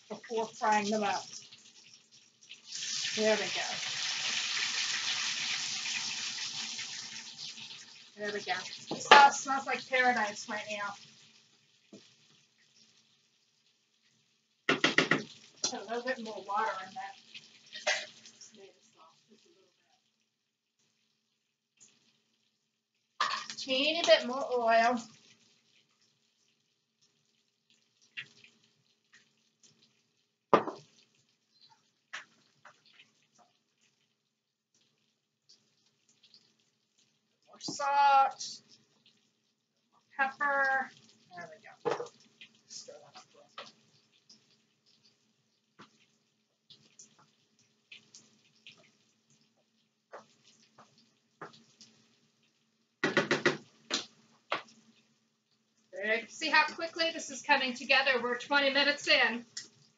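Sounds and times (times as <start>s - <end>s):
fish cakes sizzling in oil: 0.0s - 59.9s
sauce simmering: 0.0s - 59.9s
spoon scraping in a skillet: 17.7s - 18.5s.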